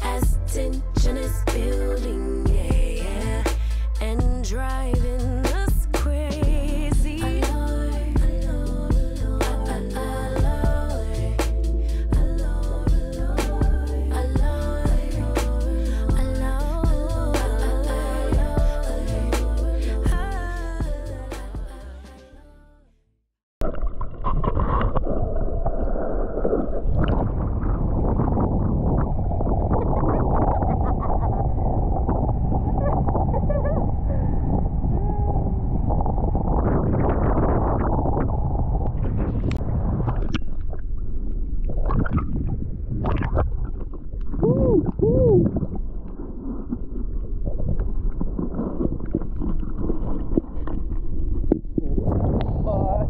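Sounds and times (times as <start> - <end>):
music track: 0.0 - 22.8
moving water: 23.6 - 53.0
underwater rumbling wash: 23.6 - 53.0
wind buffeting microphone: 24.5 - 50.2, 50.8 - 53.0.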